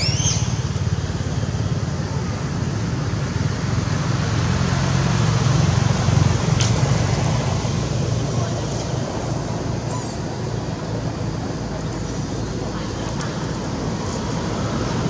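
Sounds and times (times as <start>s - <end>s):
high rising chirp: 0.0s - 0.8s
low rumbling background noise: 0.0s - 15.0s.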